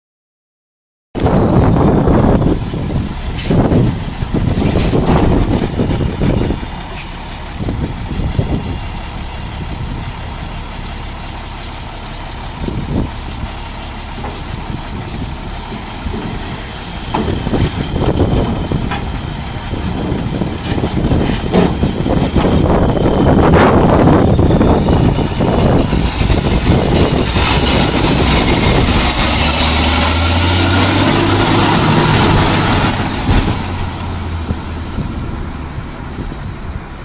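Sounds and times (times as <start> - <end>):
diesel truck engine running: 1.2 - 37.0.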